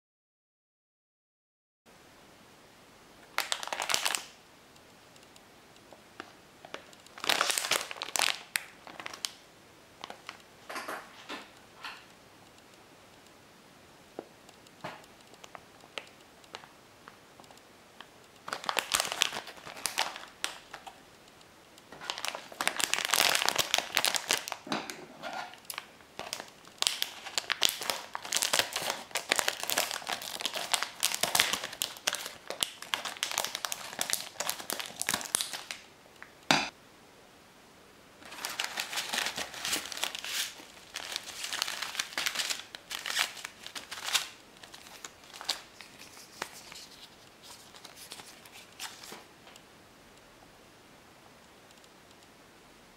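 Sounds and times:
plastic packaging crinkling: 3.2 - 4.4, 6.2 - 9.4, 10.0 - 11.3, 18.4 - 21.0, 21.9 - 36.3, 38.2 - 49.3.

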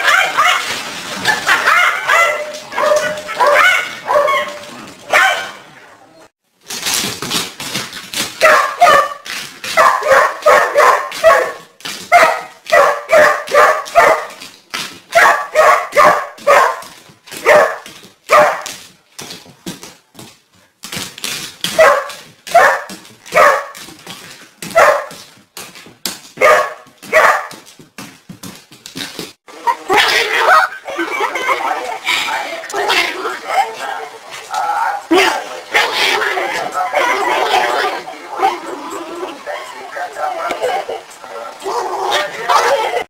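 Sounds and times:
dog barking: 0.0 - 0.7, 1.3 - 5.6, 8.4 - 14.4, 15.1 - 18.7, 21.7 - 23.8, 24.7 - 25.2, 26.4 - 27.6.

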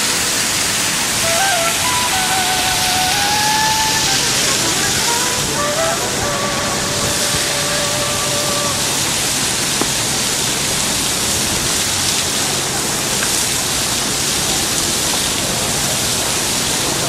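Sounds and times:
faint crowd voices: 0.0 - 9.8
steady rushing noise: 0.1 - 10.8.

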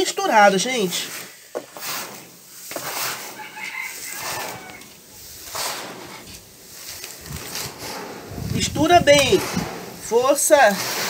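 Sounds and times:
hands scooping dry grain: 0.0 - 11.0
chicken calling faintly: 3.3 - 5.0.

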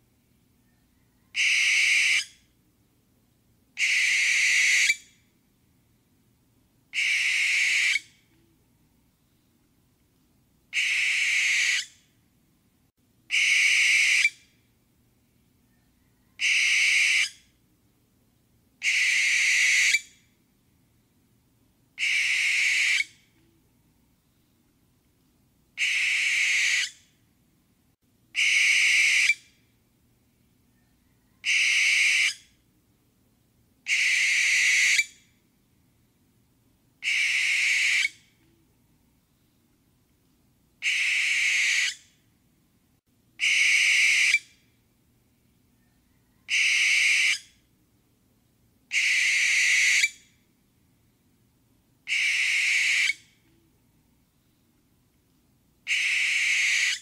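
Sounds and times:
barn owl screeching: 1.3 - 2.4, 3.8 - 5.1, 6.9 - 8.1, 10.7 - 12.0, 13.3 - 14.4, 16.3 - 17.4, 18.8 - 20.1, 22.0 - 23.2, 25.8 - 27.0, 28.4 - 29.4, 31.2 - 32.4, 33.9 - 35.2, 37.0 - 38.2, 40.8 - 42.0, 43.4 - 44.5, 46.1 - 47.5, 48.9 - 50.2, 52.1 - 53.2, 55.9 - 57.0.

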